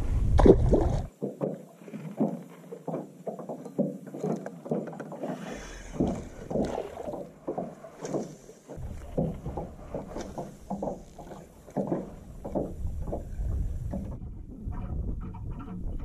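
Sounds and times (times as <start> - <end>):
wind noise on microphone: 0.0 - 1.1, 12.2 - 16.0
waves slapping against boat hull: 0.2 - 16.0.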